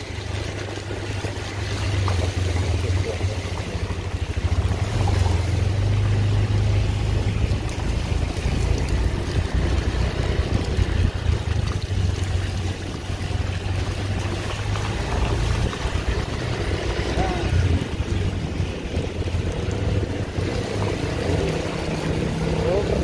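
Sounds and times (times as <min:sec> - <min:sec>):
vehicle engine droning: 0:00.0 - 0:23.0
wind on microphone: 0:06.8 - 0:23.0.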